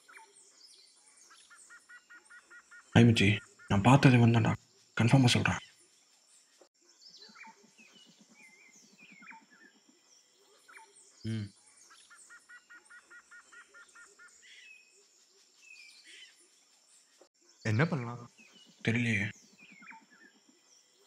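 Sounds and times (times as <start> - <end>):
birds chirping: 0.0 - 21.0
person's low vocal sound: 11.3 - 11.5.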